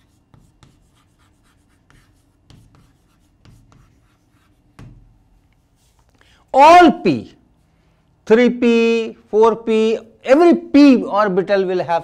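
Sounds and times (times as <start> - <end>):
chalk scratching on blackboard: 0.0 - 6.1.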